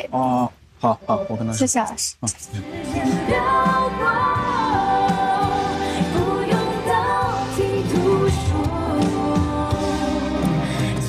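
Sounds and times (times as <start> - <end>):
woman singing pop song: 2.5 - 11.0.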